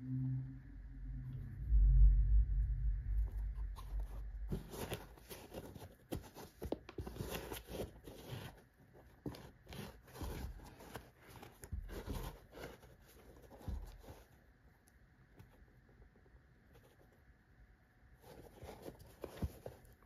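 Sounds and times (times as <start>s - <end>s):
canvas shoe rustling and scraping: 3.6s - 14.4s, 18.2s - 20.0s.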